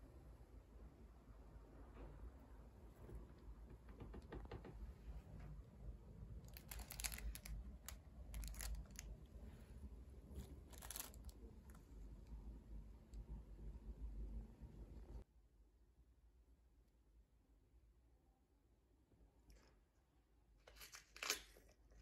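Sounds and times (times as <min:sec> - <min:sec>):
plastic wrap crinkling: 0:06.5 - 0:09.1, 0:10.3 - 0:11.4.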